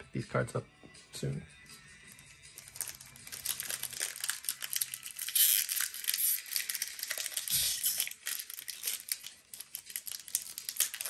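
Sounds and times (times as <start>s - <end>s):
foil wrapper crinkling and tearing: 2.5s - 11.0s.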